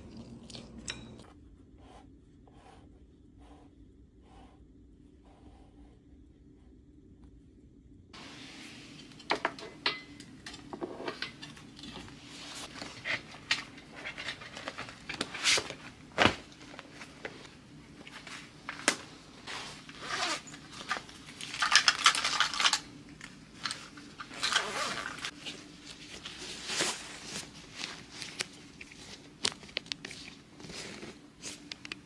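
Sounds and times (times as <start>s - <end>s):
objects rustling and scraping on desk: 8.2s - 22.8s, 23.5s - 32.0s.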